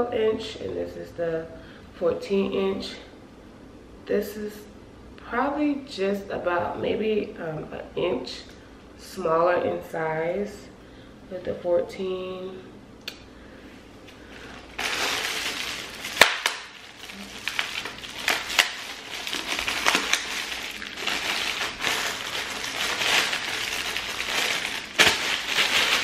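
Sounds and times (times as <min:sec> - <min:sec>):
plastic packaging crinkling: 0:14.1 - 0:26.0
sharp crackles: 0:14.7 - 0:26.0.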